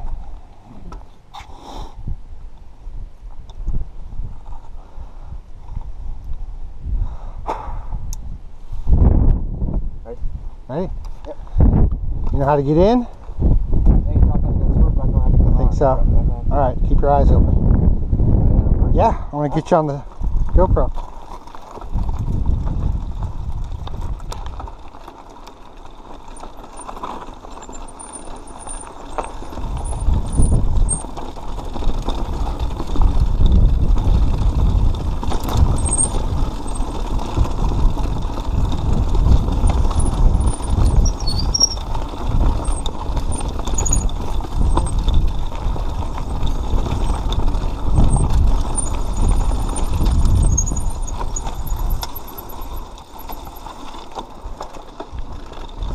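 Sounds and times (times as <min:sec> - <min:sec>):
wind rumble on microphone: 0:00.0 - 0:25.2, 0:26.4 - 0:55.9
bike tyres crunching on gravel: 0:19.7 - 0:55.9
bike clattering: 0:21.0 - 0:55.9.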